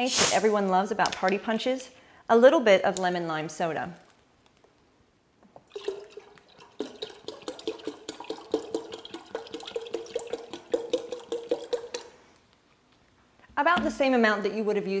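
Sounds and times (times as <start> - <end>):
soda glugging from a bottle: 5.6 - 12.2.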